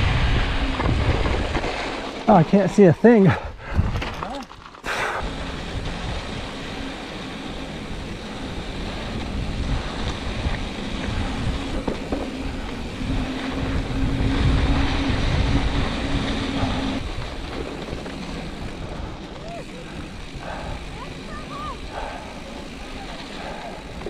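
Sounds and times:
wind rumbling on microphone: 0.0s - 2.1s, 5.1s - 24.0s
bike rolling over gravel: 0.0s - 24.0s
steady hum: 4.9s - 19.4s.

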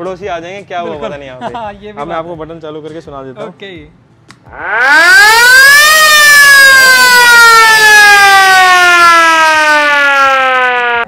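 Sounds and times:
ship's siren wailing: 4.5s - 11.0s.

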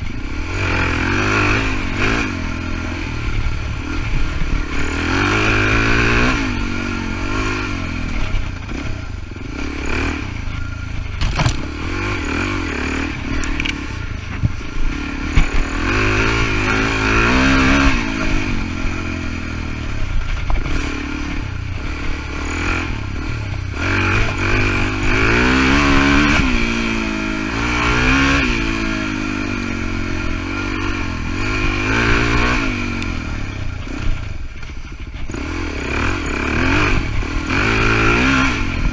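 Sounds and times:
dirt bike engine revving: 0.0s - 38.9s
bike knocking and clattering: 10.5s - 12.1s, 13.3s - 15.9s.

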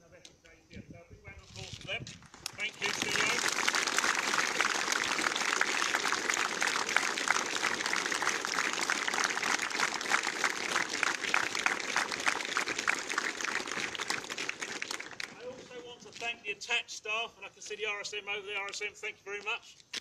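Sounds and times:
crowd applause: 2.4s - 15.4s.

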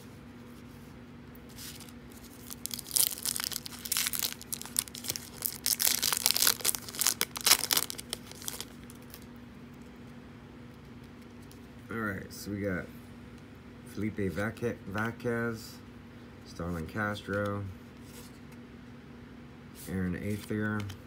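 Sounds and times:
foil wrapper tearing and crinkling: 1.6s - 9.2s.

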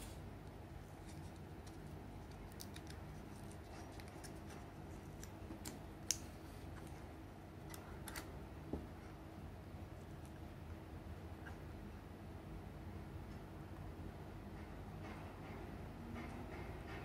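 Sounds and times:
grip tape crinkling and ticking: 0.8s - 7.0s.

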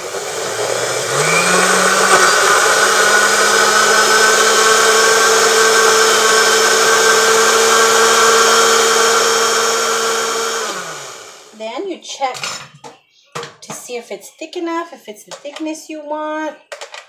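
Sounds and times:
blender running: 0.0s - 11.6s.

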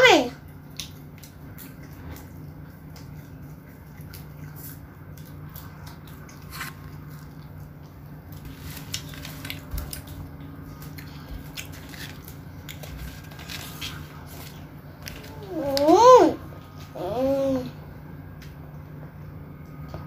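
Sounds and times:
steady low hum: 0.0s - 20.0s
child chewing and lip smacking: 0.4s - 16.0s.

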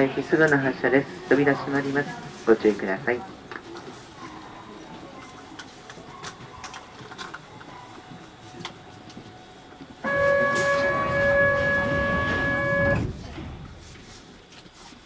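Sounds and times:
door-closing warning buzzer: 10.0s - 13.2s.

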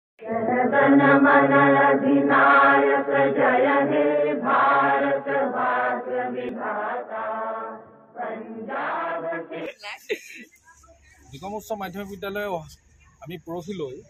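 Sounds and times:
chant-like singing: 0.2s - 9.7s.

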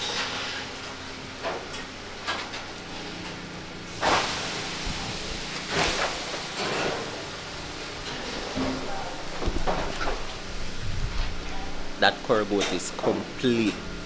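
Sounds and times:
fire crackles: 0.0s - 13.7s
wood fire hissing: 0.0s - 14.0s
handling noises: 7.8s - 11.9s.

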